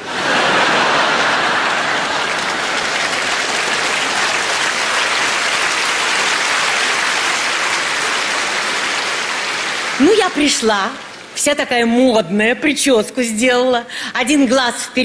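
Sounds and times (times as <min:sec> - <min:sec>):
audience laughing: 0:00.0 - 0:05.3
audience applauding: 0:00.0 - 0:11.4.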